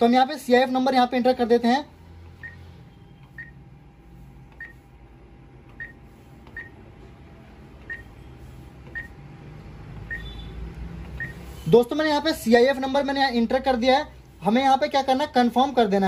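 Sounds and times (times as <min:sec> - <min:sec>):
keypad beeps: 0:02.4 - 0:03.6, 0:04.5 - 0:04.8, 0:05.7 - 0:06.8, 0:07.8 - 0:08.1, 0:08.9 - 0:09.2, 0:10.0 - 0:10.5, 0:11.1 - 0:11.4.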